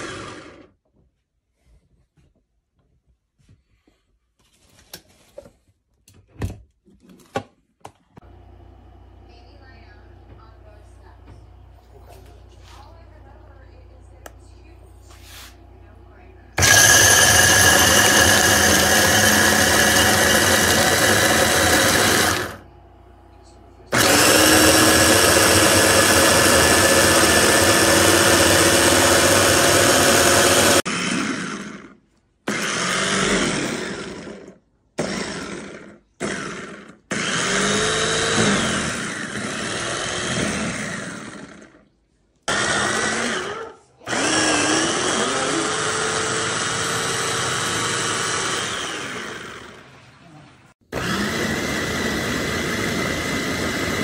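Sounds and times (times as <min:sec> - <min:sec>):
electric food chopper motor: 0:00.0 - 0:00.7, 0:16.6 - 0:22.7, 0:23.8 - 0:41.8, 0:42.5 - 0:50.0, 0:50.8 - 0:54.0.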